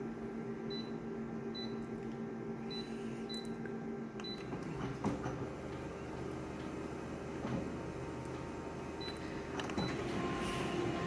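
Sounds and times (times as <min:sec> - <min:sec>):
photocopier humming: 0:00.0 - 0:11.0
copier scanning: 0:04.2 - 0:11.0.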